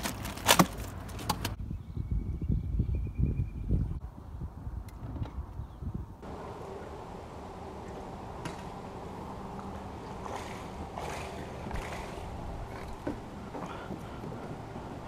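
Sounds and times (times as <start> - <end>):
steady low hum: 6.1 - 15.0
water lapping at hull: 9.1 - 15.0.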